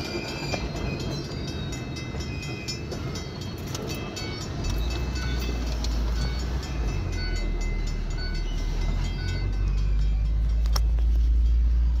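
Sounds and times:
freight train rolling past: 0:00.0 - 0:12.0
car engine idling: 0:03.4 - 0:12.0.

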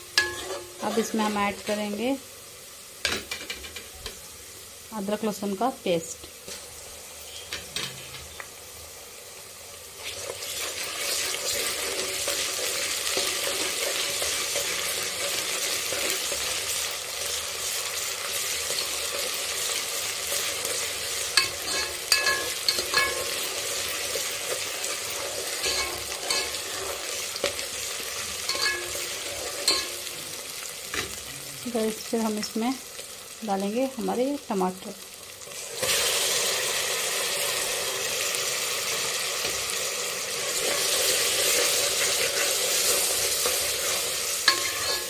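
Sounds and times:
onions sizzling in hot oil: 0:00.0 - 0:45.0
steel spoon scraping a pot: 0:00.2 - 0:01.3, 0:21.4 - 0:23.6, 0:24.5 - 0:27.1, 0:28.5 - 0:30.0, 0:42.4 - 0:45.0
spoon clinking: 0:21.4 - 0:23.3, 0:28.5 - 0:29.0.

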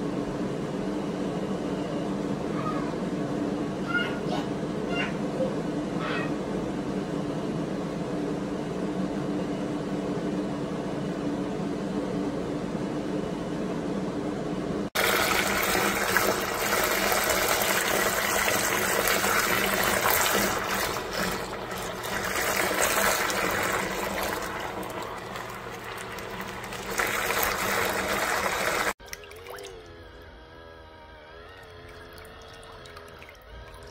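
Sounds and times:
washing machine motor hum: 0:00.0 - 0:33.9
churning water: 0:15.0 - 0:29.9.

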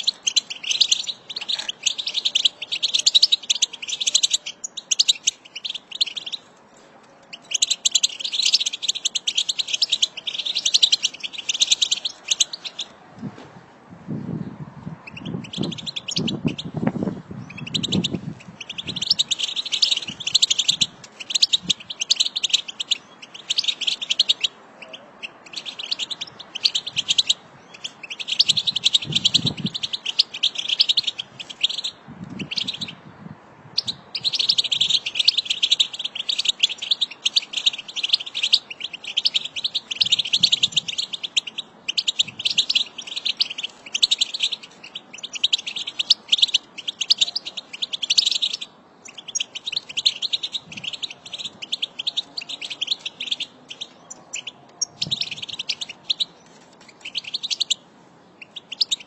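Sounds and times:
finches twittering: 0:00.0 - 0:06.4, 0:17.4 - 0:33.0, 0:33.8 - 0:56.3, 0:57.0 - 0:57.8, 0:58.4 - 0:59.0.

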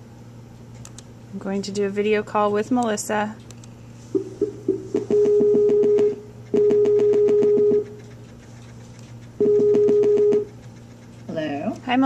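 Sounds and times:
outgoing call ringing tone: 0:04.2 - 0:07.8.

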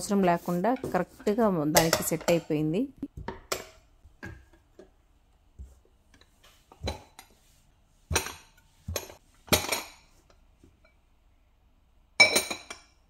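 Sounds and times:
ceramic pots clinking: 0:12.2 - 0:12.9.

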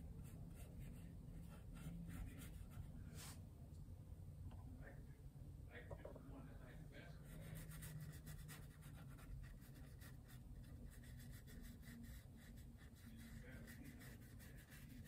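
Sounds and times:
paintbrush strokes on canvas: 0:00.2 - 0:03.4, 0:07.2 - 0:15.0.

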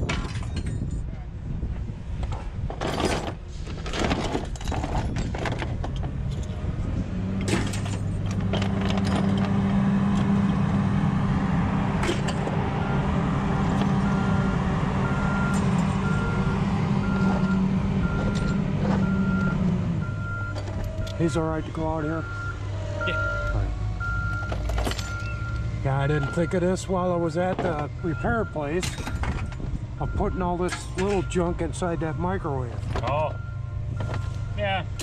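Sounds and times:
metal scrap parts clinking: 0:00.0 - 0:01.0, 0:02.7 - 0:06.6, 0:07.4 - 0:09.6, 0:12.0 - 0:12.5, 0:24.5 - 0:25.4, 0:28.7 - 0:29.5, 0:30.6 - 0:31.4
vehicle engine humming: 0:01.0 - 0:35.0
reversing beeper: 0:12.3 - 0:34.9.

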